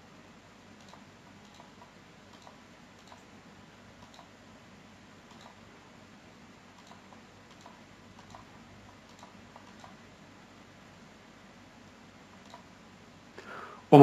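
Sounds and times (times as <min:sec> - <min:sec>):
steady low hum: 0:00.0 - 0:14.0
faint computer mouse clicks: 0:00.8 - 0:03.3, 0:04.0 - 0:04.3, 0:05.3 - 0:05.6, 0:06.7 - 0:10.0, 0:12.4 - 0:12.7.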